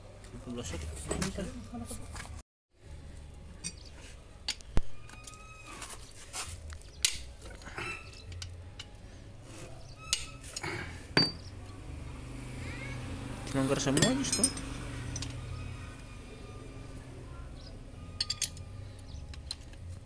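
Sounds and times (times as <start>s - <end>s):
metal tools clinking on engine: 13.8s - 15.4s, 18.1s - 19.8s.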